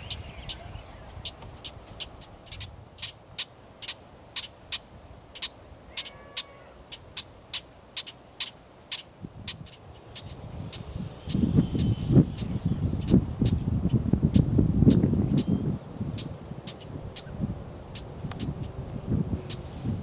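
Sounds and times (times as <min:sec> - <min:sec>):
bird chip call: 0:05.4 - 0:13.6.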